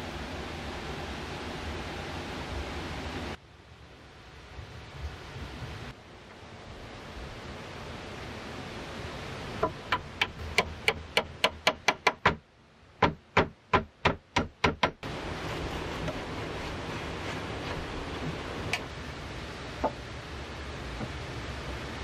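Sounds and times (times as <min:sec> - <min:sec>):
steady rushing hiss: 0:00.0 - 0:22.0
hammer knocking wooden pegs: 0:09.6 - 0:12.4, 0:13.0 - 0:15.1, 0:19.8 - 0:20.0.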